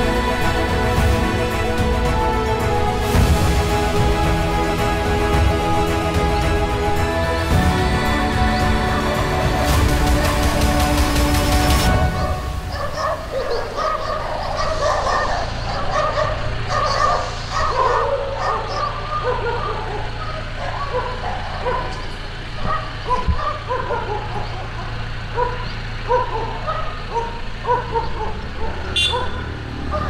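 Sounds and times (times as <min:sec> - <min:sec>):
dogs barking: 0:12.1 - 0:30.0.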